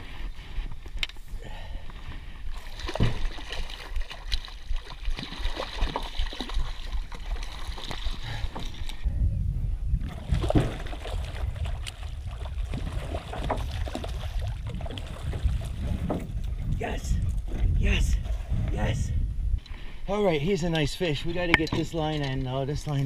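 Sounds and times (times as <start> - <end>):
fish splashing in water: 2.5 - 8.4.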